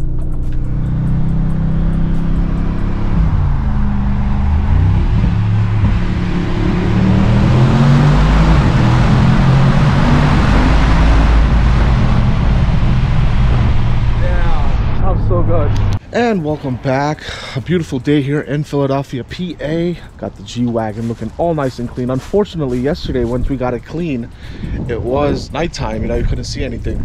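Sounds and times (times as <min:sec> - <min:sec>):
car engine accelerating in tunnel: 0:00.0 - 0:16.0.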